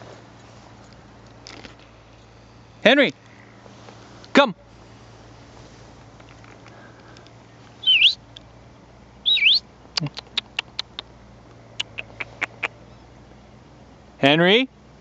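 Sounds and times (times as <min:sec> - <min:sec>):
person whistling: 0:07.8 - 0:08.2
mouth clicks and smacks: 0:10.0 - 0:11.1, 0:11.8 - 0:12.8.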